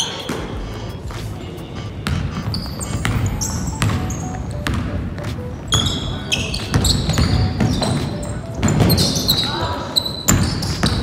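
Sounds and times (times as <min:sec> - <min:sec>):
sneakers squeaking: 0:00.0 - 0:11.0
basketball bouncing on hardwood floor: 0:02.0 - 0:05.9, 0:06.6 - 0:09.2, 0:10.3 - 0:11.0.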